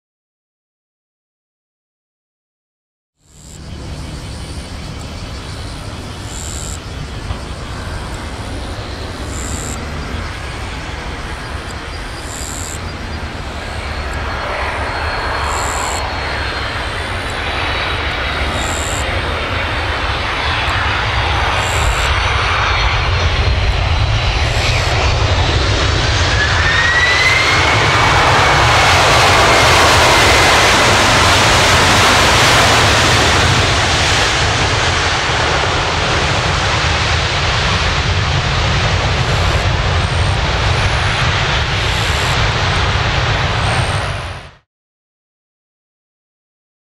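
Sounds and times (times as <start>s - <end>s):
faint high whine: 3.2s - 34.3s
rising jet whine: 3.2s - 44.6s
jet engine noise: 3.2s - 44.7s.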